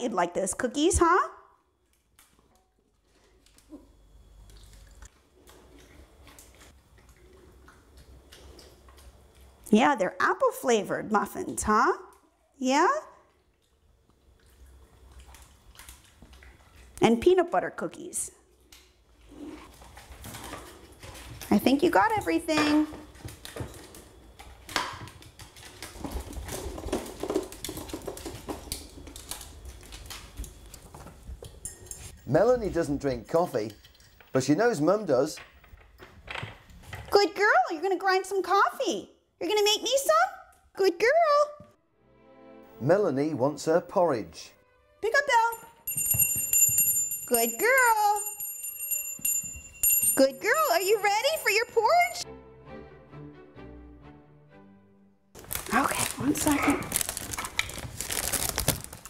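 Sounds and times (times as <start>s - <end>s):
paws tapping plastic toys: 24.7s - 31.6s.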